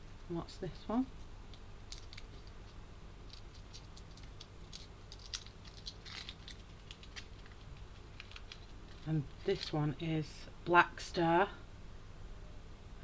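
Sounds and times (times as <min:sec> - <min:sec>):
foil wrapper crinkling: 0:01.9 - 0:09.8.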